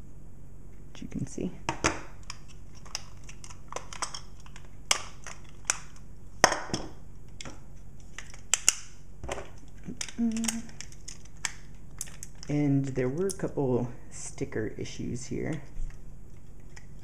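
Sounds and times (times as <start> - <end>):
toy parts clicking and knocking: 2.2 - 6.0, 9.6 - 13.6.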